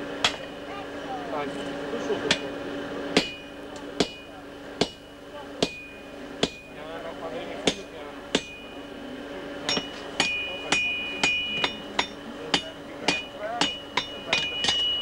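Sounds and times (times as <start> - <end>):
hammer striking anvil: 0.2 - 0.6, 3.2 - 6.8, 7.6 - 8.8, 9.6 - 15.0
anvil ringing: 3.2 - 6.9, 7.6 - 8.9, 9.6 - 15.0.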